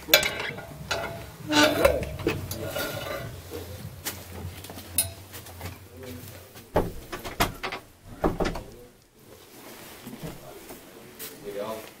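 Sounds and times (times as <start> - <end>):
objects knocking and clinking: 0.0 - 3.4, 4.9 - 5.8.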